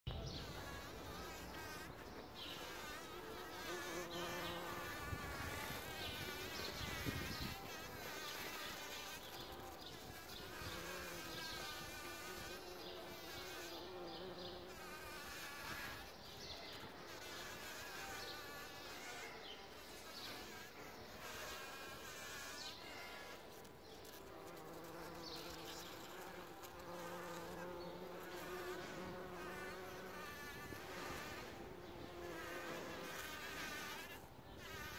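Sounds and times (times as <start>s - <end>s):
bumblebees buzzing: 0.1s - 34.9s.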